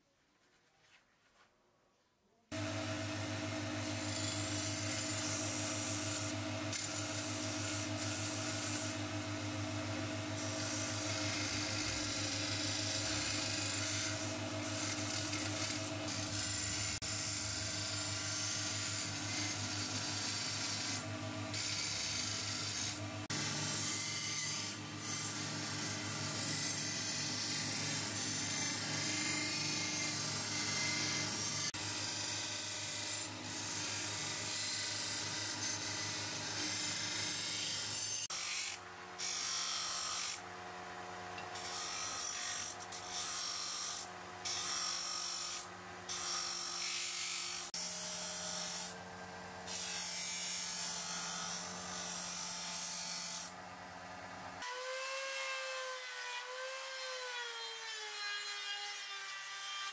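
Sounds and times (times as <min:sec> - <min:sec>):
belt grinder motor hum: 0:02.6 - 0:40.4.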